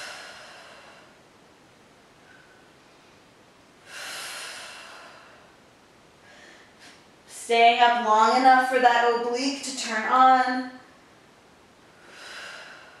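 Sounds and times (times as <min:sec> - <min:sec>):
woman exhaling forcefully: 0:00.0 - 0:01.2, 0:03.8 - 0:05.6, 0:12.0 - 0:13.0.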